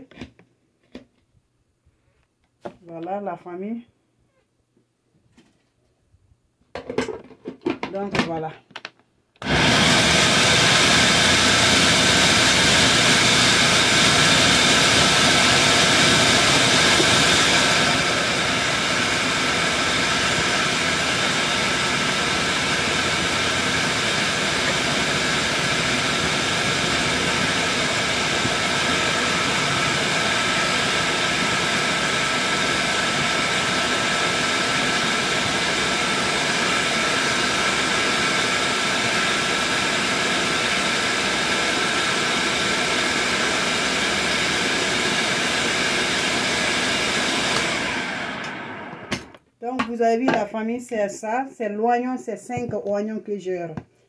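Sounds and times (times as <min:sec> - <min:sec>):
electric blender running: 0:09.4 - 0:49.4.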